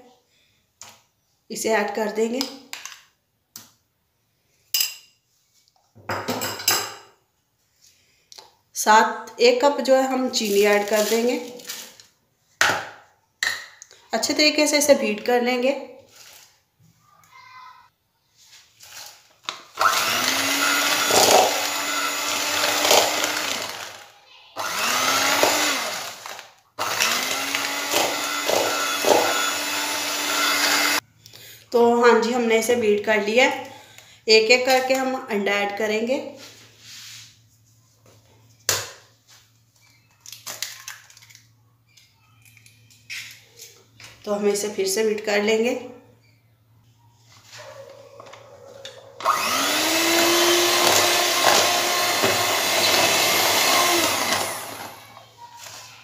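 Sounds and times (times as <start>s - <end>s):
electric hand mixer running: 19.8s - 31.0s, 49.2s - 55.2s
egg cracking on a bowl: 40.1s - 43.4s.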